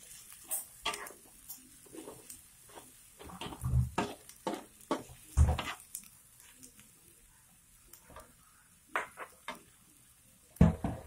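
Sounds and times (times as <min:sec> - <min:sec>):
spatula scraping a wok: 0:00.0 - 0:06.0.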